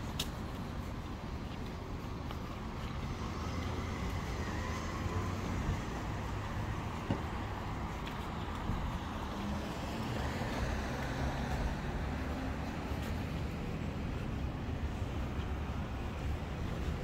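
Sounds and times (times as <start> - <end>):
cars rumbling on road: 0.0 - 17.0.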